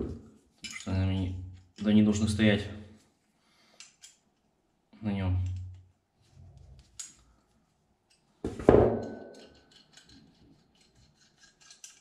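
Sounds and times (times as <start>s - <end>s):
light clicks of metal parts: 0.6s - 2.0s, 3.7s - 4.5s, 6.6s - 8.4s, 9.0s - 12.0s.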